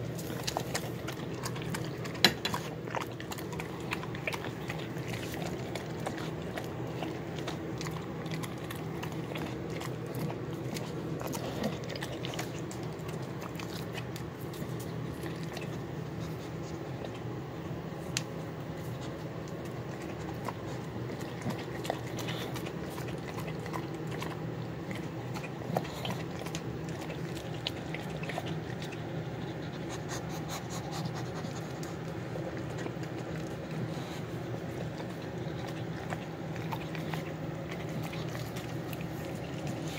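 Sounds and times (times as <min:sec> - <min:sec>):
dogs chewing and licking: 0:00.0 - 0:39.9
steady low hum: 0:00.0 - 0:39.9.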